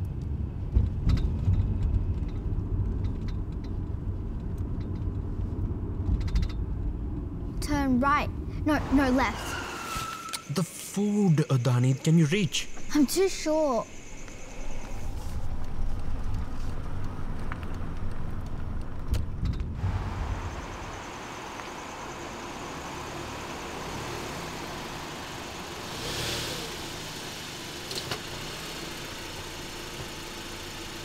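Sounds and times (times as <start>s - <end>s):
car rolling slowly outdoors: 0.0s - 31.0s
car cabin driving rumble: 12.3s - 28.3s.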